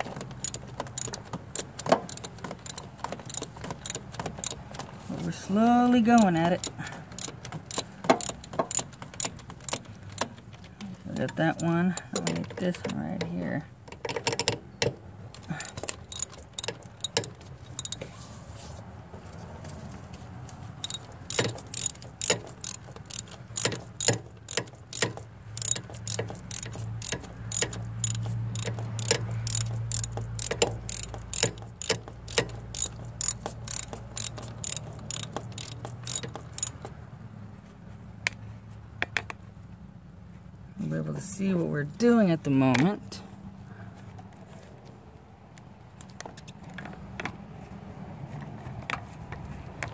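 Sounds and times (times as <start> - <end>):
socket ratchet clicking: 0.3 - 4.6, 6.2 - 10.3, 15.6 - 18.0, 20.8 - 36.8.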